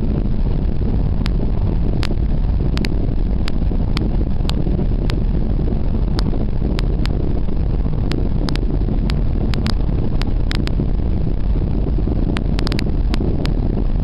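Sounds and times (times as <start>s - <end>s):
car road and wind noise: 0.0s - 14.0s
sharp ticks: 2.0s - 5.2s, 8.1s - 10.8s, 12.3s - 13.6s.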